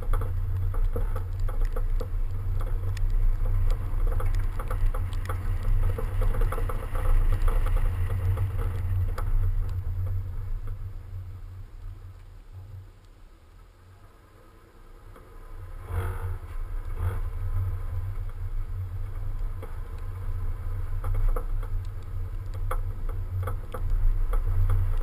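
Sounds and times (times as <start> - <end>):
sharp ticks: 0.0 - 10.8
wind and road noise rumble: 0.0 - 25.0.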